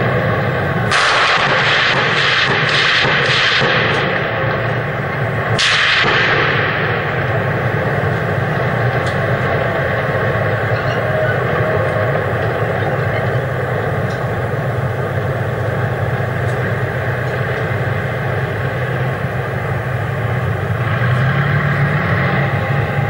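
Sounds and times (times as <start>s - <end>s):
tank engine rumbling: 0.0s - 23.0s.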